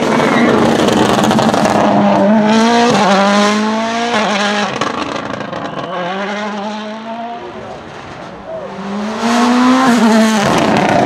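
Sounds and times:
rally car engine accelerating: 0:00.0 - 0:11.0.

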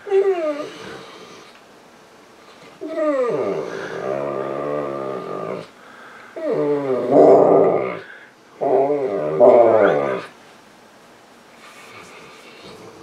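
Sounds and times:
dog whining moans: 0:00.0 - 0:01.5, 0:02.6 - 0:05.7, 0:06.4 - 0:10.4.

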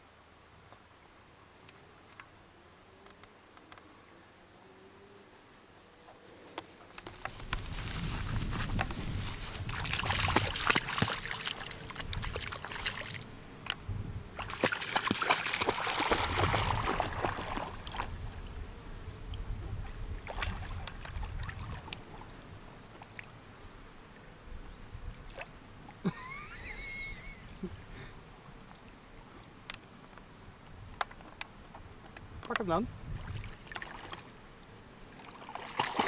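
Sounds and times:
dog splashing in water: 0:09.5 - 0:13.2, 0:14.4 - 0:18.1, 0:35.2 - 0:36.0
water lapping: 0:09.5 - 0:13.3, 0:14.4 - 0:18.2, 0:19.8 - 0:23.3, 0:33.2 - 0:34.3, 0:35.2 - 0:36.0.

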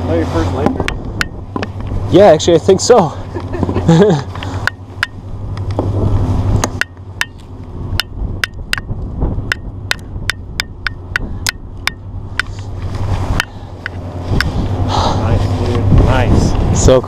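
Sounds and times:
steady low hum: 0:00.0 - 0:17.0
sharp irregular clicks: 0:06.6 - 0:12.7, 0:13.4 - 0:14.5.

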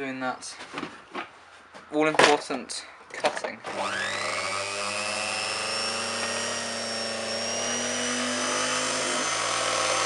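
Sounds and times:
drill motor whining: 0:03.6 - 0:10.0.

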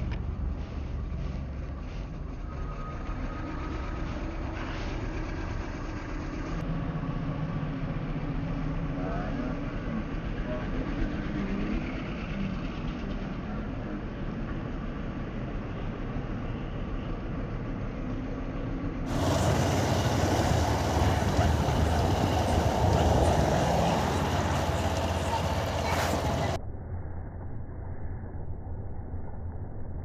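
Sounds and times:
road and traffic noise: 0:00.0 - 0:26.6
motorcycle engine running: 0:19.1 - 0:26.6.

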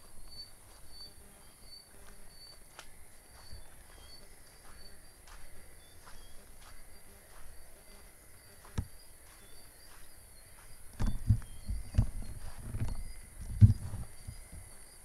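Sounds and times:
footsteps rustling through grass: 0:00.0 - 0:14.9
crickets chirping: 0:00.0 - 0:15.0.

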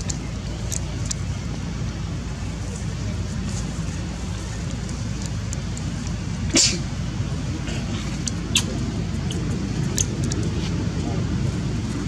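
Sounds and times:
low rumble: 0:00.0 - 0:12.0.

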